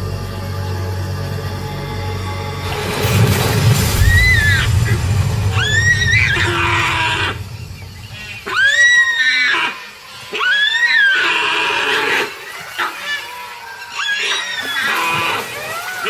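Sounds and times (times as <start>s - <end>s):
splashing in shallow water: 2.5s - 16.0s
deer screaming: 8.4s - 16.0s.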